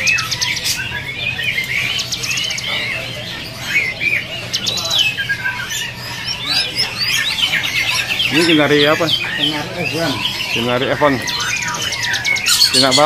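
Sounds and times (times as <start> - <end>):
songbirds chirping: 0.0 - 13.0.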